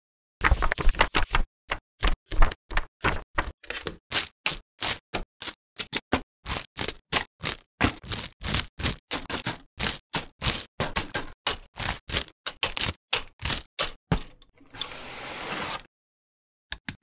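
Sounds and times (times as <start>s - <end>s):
paper booklet pages leafing: 0.4s - 1.4s, 2.0s - 9.0s.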